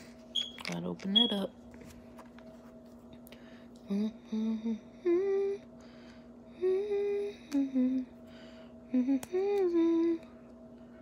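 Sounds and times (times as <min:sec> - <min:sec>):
woman humming: 0:03.8 - 0:05.7, 0:06.5 - 0:08.2, 0:08.9 - 0:10.4.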